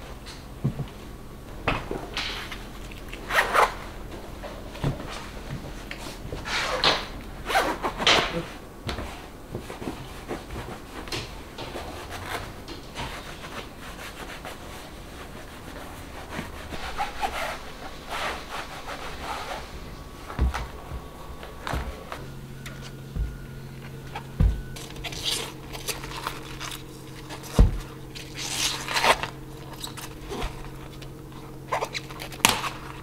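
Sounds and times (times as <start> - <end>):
clothing rustling: 0.0 - 33.0
low steady hum: 0.0 - 33.0
hand rubbing leather boots: 1.8 - 33.0
dull thump: 20.3 - 24.8, 27.5 - 28.0.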